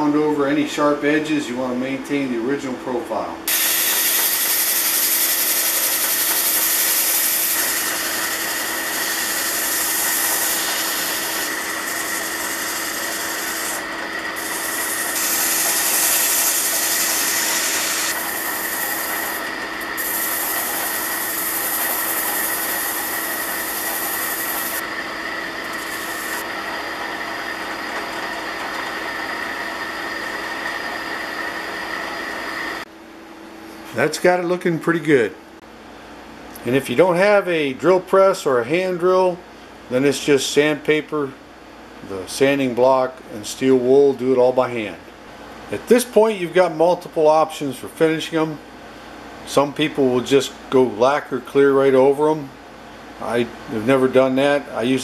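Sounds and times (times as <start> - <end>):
sandpaper rubbing hiss: 3.5 - 13.8, 14.4 - 19.4, 20.0 - 24.8, 25.7 - 26.4
drill press hum: 3.5 - 32.9.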